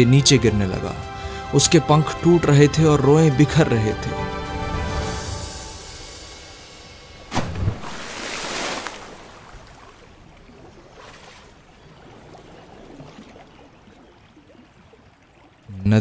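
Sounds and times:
rushing water and waves: 0:00.0 - 0:16.0
heavy splash into water: 0:07.2 - 0:11.6.

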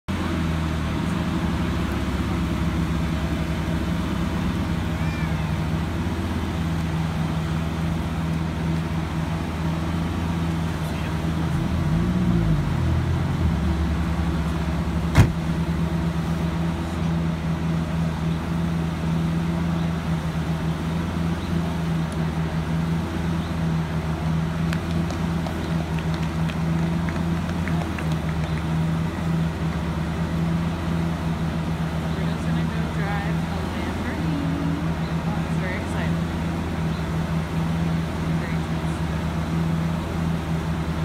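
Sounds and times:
car engine idling: 0:00.0 - 0:41.0
car door shutting: 0:15.1 - 0:15.5.

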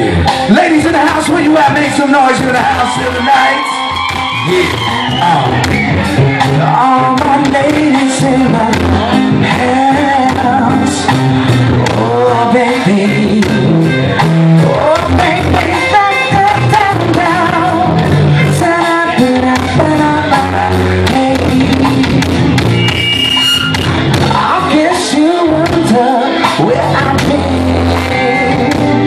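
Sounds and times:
blues-rock band playing: 0:00.0 - 0:29.0
amplified harmonica wailing: 0:22.6 - 0:24.1.

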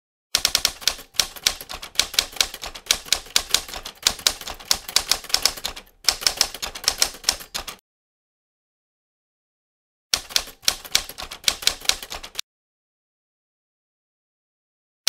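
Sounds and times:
typewriter keys clacking: 0:00.4 - 0:07.8, 0:10.2 - 0:12.4.

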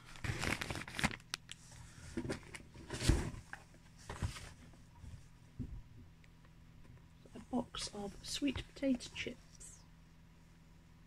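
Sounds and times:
rustling packaging: 0:00.0 - 0:04.8.

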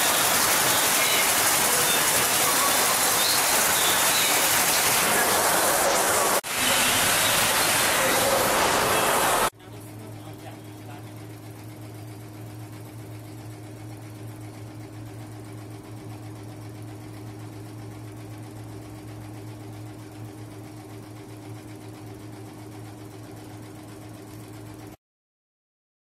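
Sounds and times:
embroidery machine stitching rattle: 0:00.0 - 0:09.5.

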